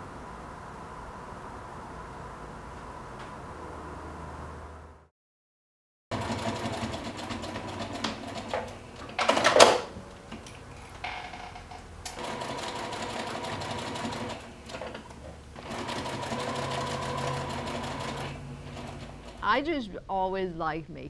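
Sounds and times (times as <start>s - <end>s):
sewing machine stitching: 6.1s - 9.9s, 12.1s - 19.4s.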